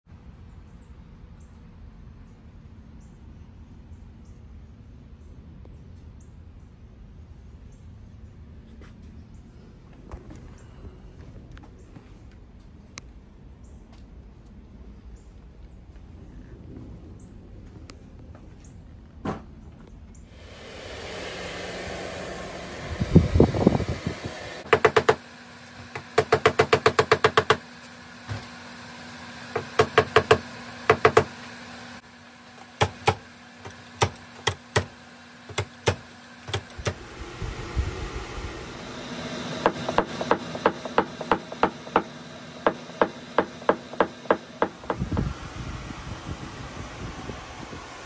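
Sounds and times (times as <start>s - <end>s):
hammer tapping on tool: 24.6s - 25.2s, 25.9s - 27.6s, 29.6s - 31.3s, 35.5s - 37.0s, 39.6s - 45.0s.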